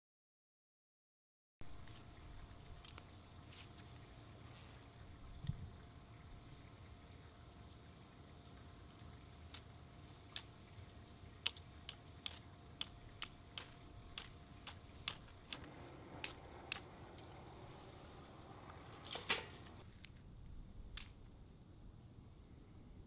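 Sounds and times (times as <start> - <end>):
faint flame crackle: 7.9 - 23.0.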